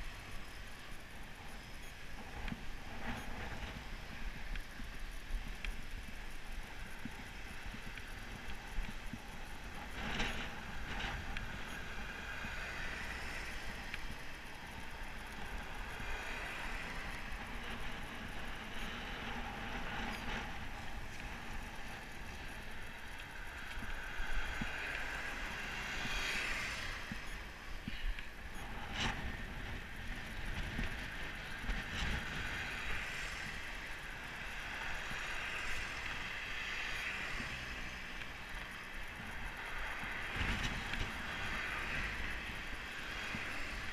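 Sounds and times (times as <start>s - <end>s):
bicycle tyre noise: 0.0s - 43.9s
wind rushing over camera: 0.0s - 43.9s
cars passing: 9.5s - 43.9s.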